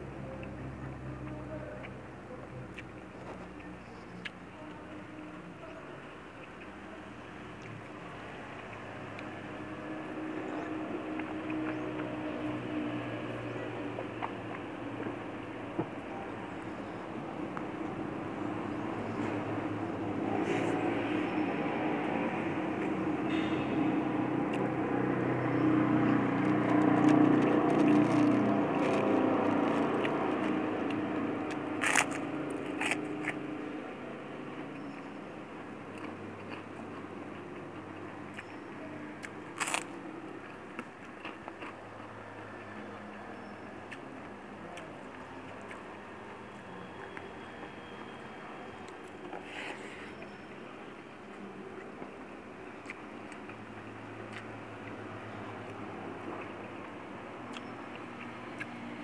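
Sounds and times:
chewing clicks: 2.6 - 4.4, 6.3 - 6.8, 7.5 - 15.6, 25.5 - 33.4, 34.6 - 48.2, 51.2 - 59.0
cracker crunching: 25.8 - 33.8, 35.6 - 38.6, 39.2 - 43.1, 51.2 - 58.8.

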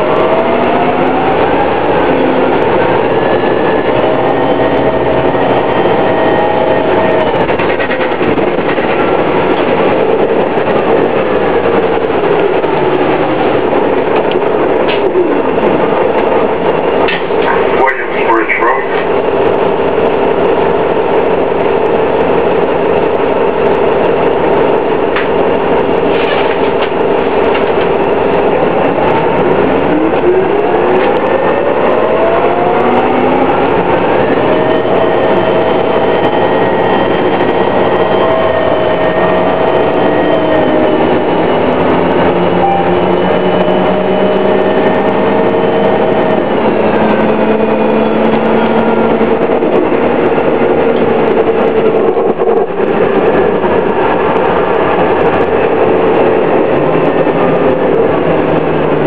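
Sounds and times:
bus engine whine: 0.0 - 59.0.

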